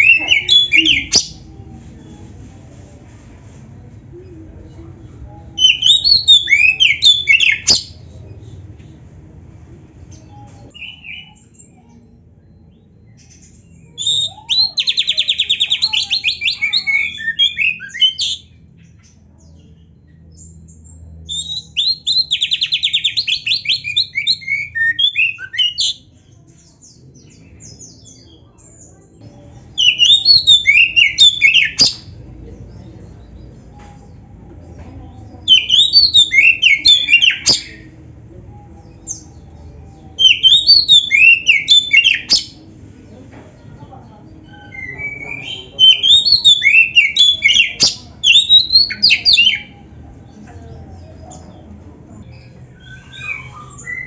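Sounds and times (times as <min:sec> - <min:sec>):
songbird whistling phrases: 0:05.6 - 0:07.9, 0:10.3 - 0:11.8, 0:13.7 - 0:18.5, 0:21.3 - 0:26.0, 0:29.7 - 0:32.1, 0:35.4 - 0:37.9, 0:38.8 - 0:42.6, 0:44.4 - 0:49.8, 0:52.8 - 0:54.0.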